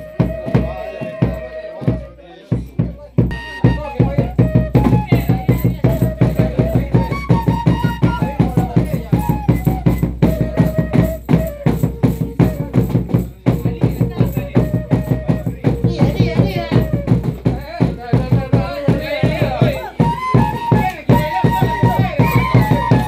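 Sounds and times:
fast even drumbeat: 0:00.0 - 0:23.0
held-note melody: 0:03.3 - 0:08.6.

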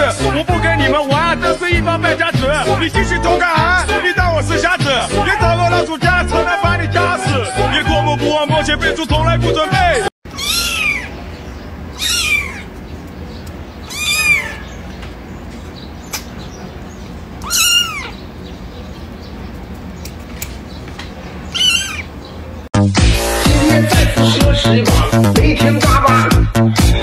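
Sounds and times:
kitten meowing: 0:10.3 - 0:11.2, 0:11.9 - 0:12.7, 0:13.8 - 0:14.8, 0:17.4 - 0:18.2, 0:21.5 - 0:22.1.

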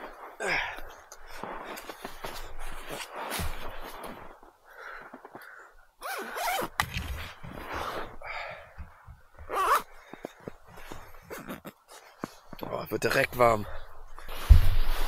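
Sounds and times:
sleeping bag zipper pulled: 0:06.0 - 0:08.0, 0:09.5 - 0:09.9, 0:11.3 - 0:11.8.

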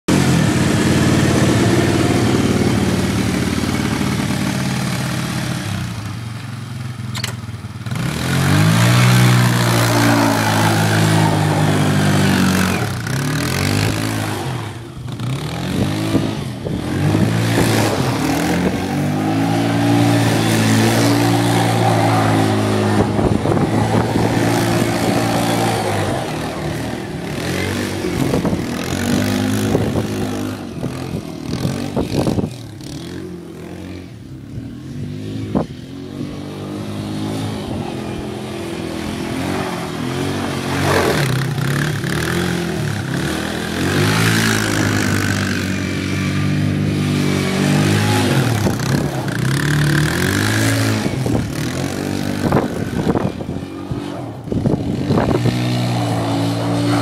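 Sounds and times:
small atv engine revving: 0:00.1 - 0:57.0.

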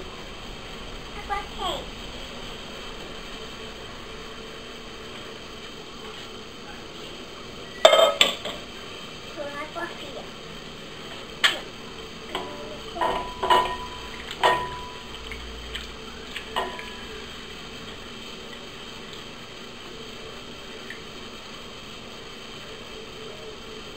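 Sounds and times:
pot set down on counter: 0:12.4 - 0:15.0.

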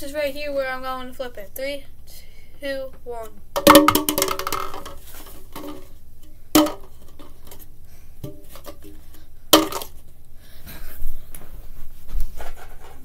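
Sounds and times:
plastic cups knocking: 0:03.6 - 0:07.6, 0:08.2 - 0:09.0, 0:09.6 - 0:10.0.

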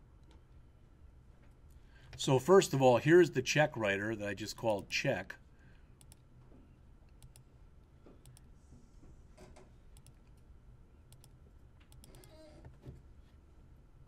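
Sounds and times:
low steady hum: 0:00.0 - 0:14.0
computer mouse clicks: 0:06.0 - 0:06.3, 0:07.1 - 0:07.5, 0:08.2 - 0:08.5, 0:09.9 - 0:10.5, 0:11.1 - 0:12.8.

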